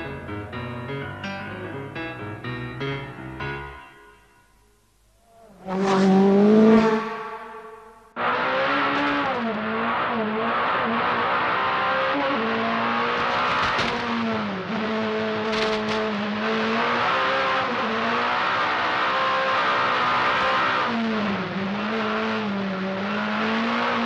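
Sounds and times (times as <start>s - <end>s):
rally car engine revving: 5.3s - 24.0s.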